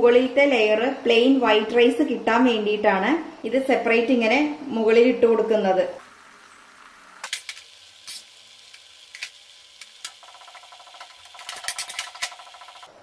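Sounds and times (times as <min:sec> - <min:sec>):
faint steady hiss: 0:02.5 - 0:10.2.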